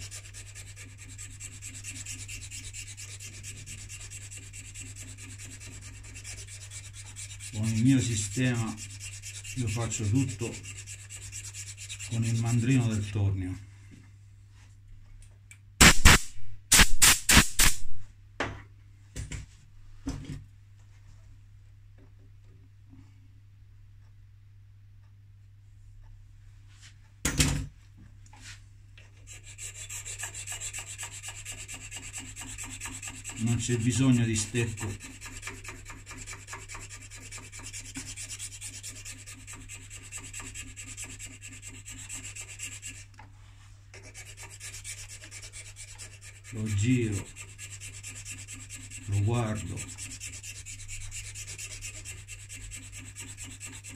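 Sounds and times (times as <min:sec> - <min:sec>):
hand file rasping on pipe: 0:00.0 - 0:13.0, 0:29.2 - 0:43.1, 0:43.9 - 0:53.9.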